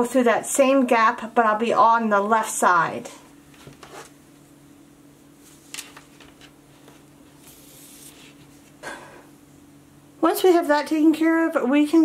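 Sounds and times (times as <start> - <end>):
steady low hum: 0.0 - 12.0
cord rustling and scraping: 3.5 - 4.2, 5.4 - 8.8.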